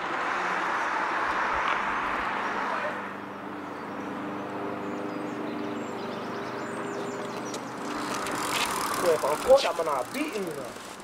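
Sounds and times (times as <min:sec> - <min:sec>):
street background noise: 0:00.0 - 0:11.0.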